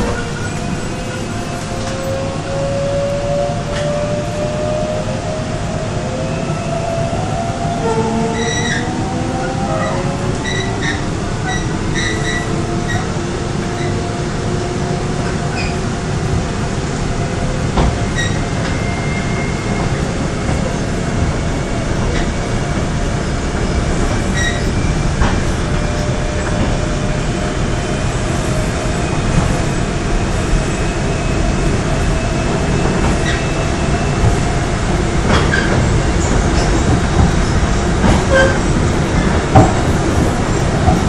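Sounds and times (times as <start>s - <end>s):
subway train wheels rumbling: 0.0s - 41.0s
track clacks: 15.0s - 30.6s, 31.4s - 41.0s.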